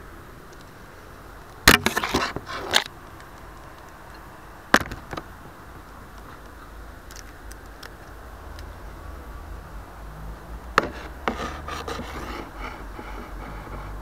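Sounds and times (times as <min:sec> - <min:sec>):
scraping and rubbing: 0:01.7 - 0:02.9, 0:10.8 - 0:14.0.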